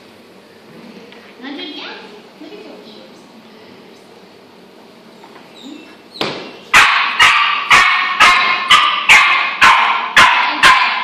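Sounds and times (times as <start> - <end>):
puppy barking: 6.7 - 11.0.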